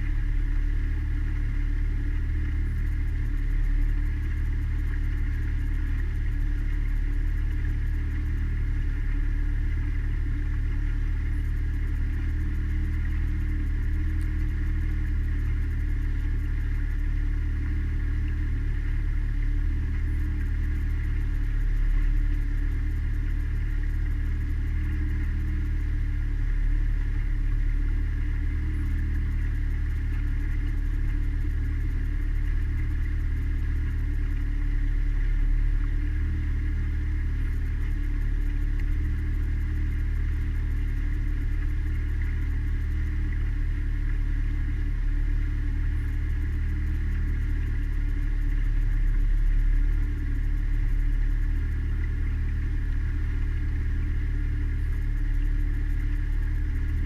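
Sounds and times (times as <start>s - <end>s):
outboard motor droning: 0.0s - 57.0s.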